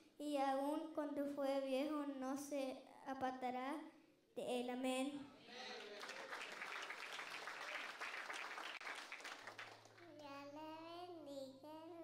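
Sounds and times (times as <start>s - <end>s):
child's voice over microphone: 0.2s - 3.8s, 4.4s - 5.3s, 10.0s - 12.0s
congregation applauding: 5.5s - 10.1s.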